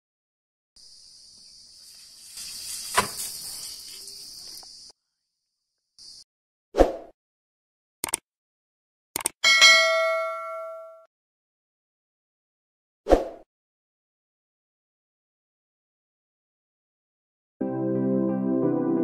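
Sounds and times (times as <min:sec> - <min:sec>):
high hiss: 0:00.8 - 0:04.9
sharp crack: 0:02.9 - 0:03.4
mouse clicks: 0:08.0 - 0:08.2.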